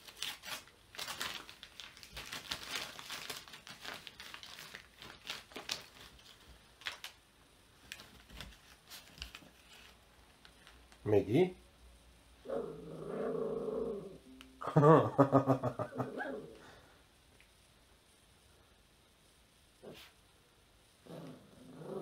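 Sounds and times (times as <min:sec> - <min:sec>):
paper crinkling and crumpling: 0:00.0 - 0:07.2, 0:07.8 - 0:11.0.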